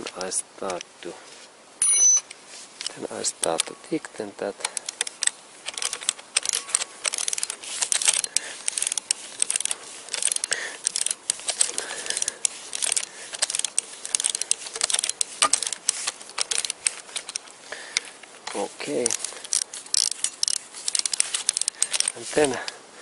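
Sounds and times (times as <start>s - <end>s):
ratchet wrench clicking: 4.7s - 17.4s, 18.9s - 22.7s.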